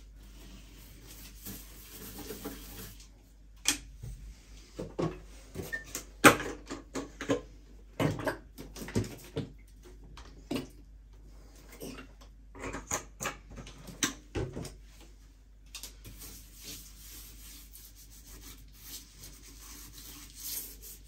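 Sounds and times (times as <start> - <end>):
brush scrubbing ceramic basin: 0.0 - 3.1, 16.0 - 21.0.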